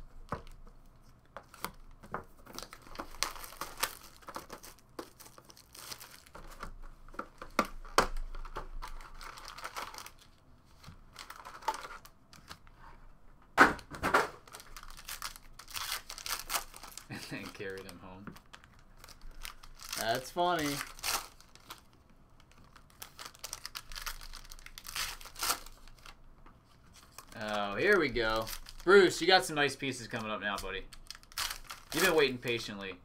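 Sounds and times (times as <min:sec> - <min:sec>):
wrapper crinkling: 0:02.5 - 0:06.7, 0:08.3 - 0:12.6, 0:14.4 - 0:26.2, 0:26.9 - 0:32.8
foil packs ripping: 0:02.6 - 0:06.4, 0:14.4 - 0:18.0, 0:19.0 - 0:21.8, 0:22.8 - 0:26.1, 0:31.0 - 0:32.4.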